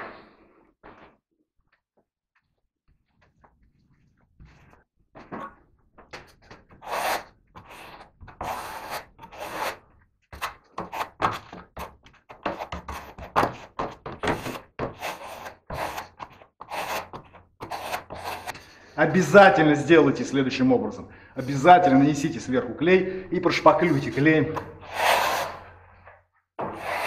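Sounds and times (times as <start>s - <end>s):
trowel scraping wallcovering: 6.3s - 18.8s, 23.4s - 27.0s.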